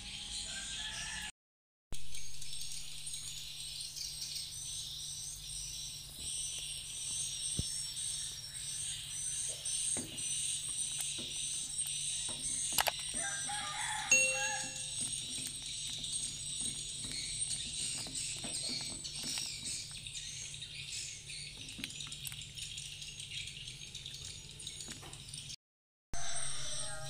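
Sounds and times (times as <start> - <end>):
insects chirping: 2.2 - 24.8.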